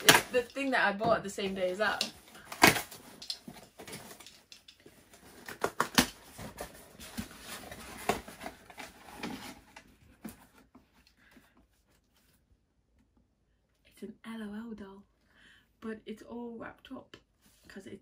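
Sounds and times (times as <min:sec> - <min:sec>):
packaging rustling: 0:01.5 - 0:09.8.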